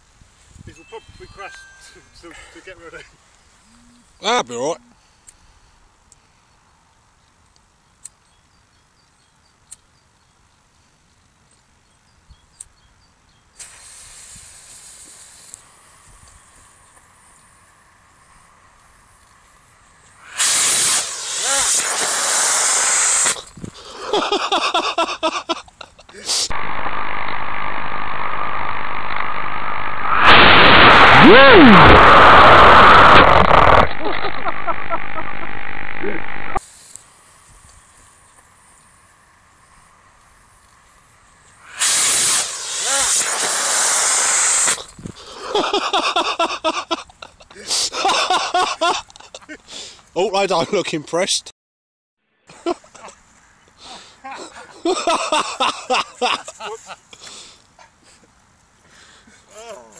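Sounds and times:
rocket motor rushing hiss: 0:13.6 - 0:17.7, 0:20.2 - 0:23.7, 0:26.3 - 0:40.7, 0:41.6 - 0:45.7
excited voices: 0:30.8 - 0:35.4.

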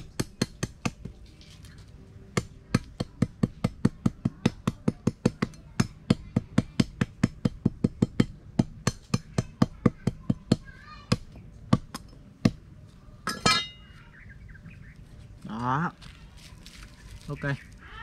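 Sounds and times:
machete chopping bamboo stick: 0:00.0 - 0:01.2.

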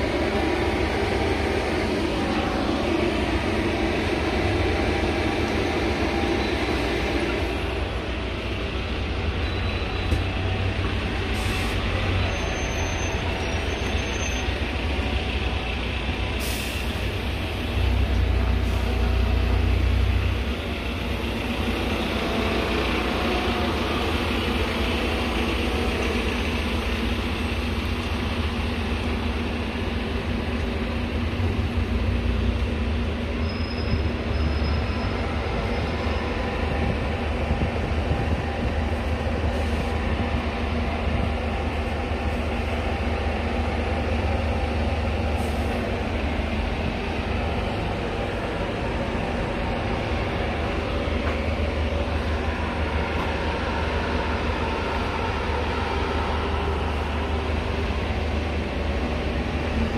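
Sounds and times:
diesel bus engines rumbling: 0:00.0 - 0:59.9
faint high squeal: 0:09.3 - 0:10.3, 0:11.4 - 0:14.6, 0:33.4 - 0:36.4.

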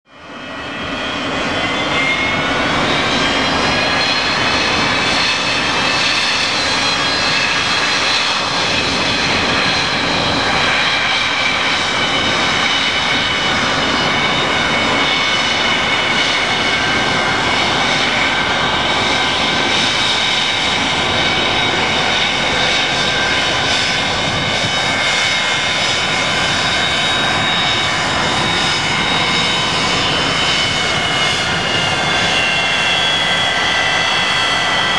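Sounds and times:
jet engines roaring and whining: 0:00.1 - 0:34.9.

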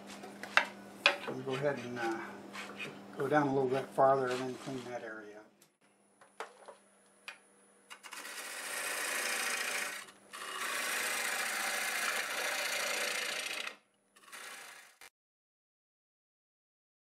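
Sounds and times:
gouge cutting wood on lathe: 0:08.0 - 0:15.1.

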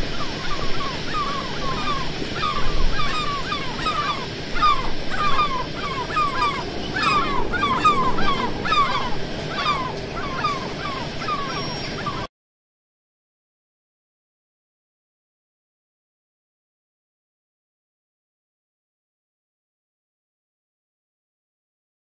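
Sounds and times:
crows cawing: 0:00.0 - 0:12.3
low background hum: 0:00.0 - 0:12.3.

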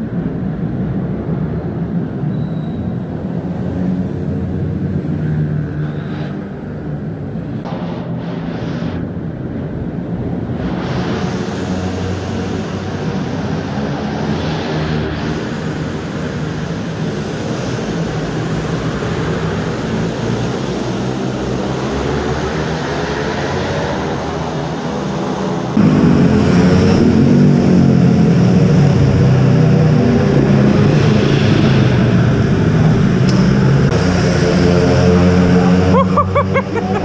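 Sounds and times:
mini bike engine revving: 0:33.3 - 0:37.0.

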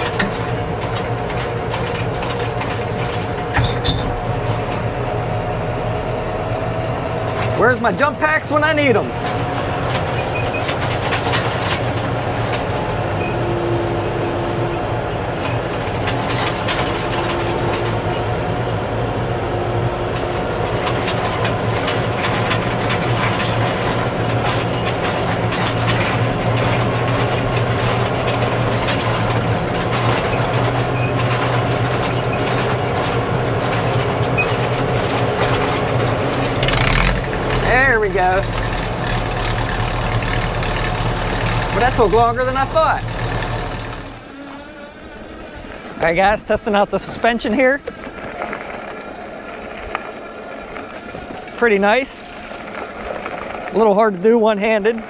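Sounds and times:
tractor engine turning over and firing: 0:00.0 - 0:06.5, 0:07.2 - 0:13.4, 0:15.1 - 0:19.0, 0:20.2 - 0:44.3.

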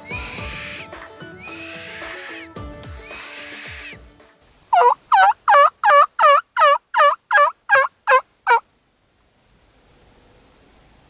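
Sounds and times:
mouth call yelps: 0:00.0 - 0:04.0, 0:04.7 - 0:08.6.

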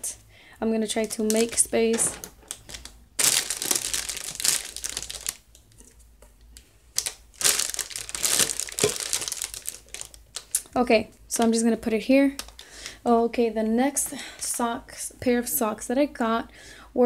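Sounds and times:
cellophane crinkling: 0:00.9 - 0:06.1, 0:06.9 - 0:10.8.

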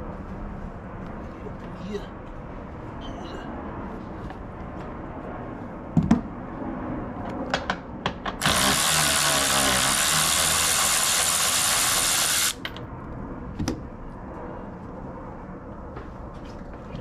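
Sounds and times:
cordless power tool running: 0:08.4 - 0:12.6.

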